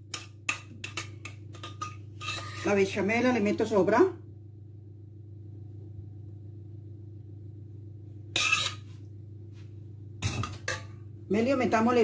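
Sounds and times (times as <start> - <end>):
steady low hum: 0.0 - 12.0
metal pan clatter: 0.1 - 2.6.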